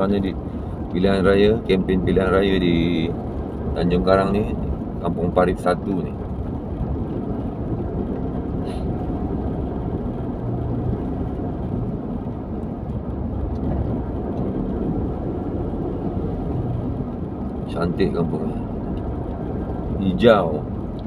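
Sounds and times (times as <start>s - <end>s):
car engine and tyre rumble: 0.0s - 21.0s.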